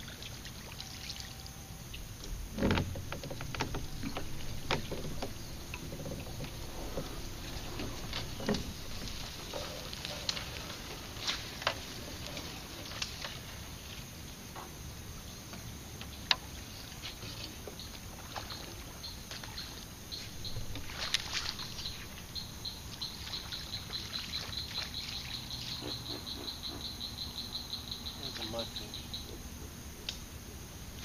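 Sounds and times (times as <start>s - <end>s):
marsh ambience: 1.9s - 14.8s.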